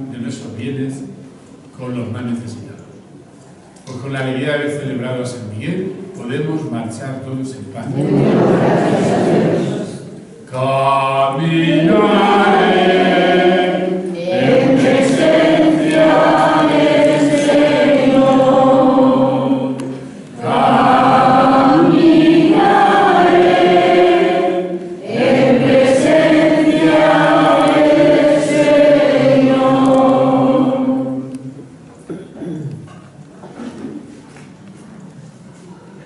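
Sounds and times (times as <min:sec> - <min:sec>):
congregation singing a hymn: 0:07.8 - 0:31.8.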